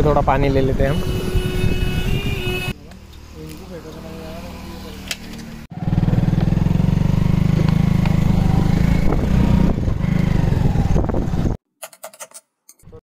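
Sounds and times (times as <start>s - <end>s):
motorcycle engine running: 3.9s - 11.6s.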